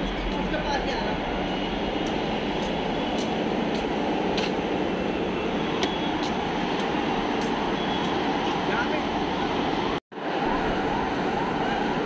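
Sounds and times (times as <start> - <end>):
steady rushing background noise: 0.0 - 12.0
footsteps on pavement: 1.9 - 4.7, 5.8 - 8.2.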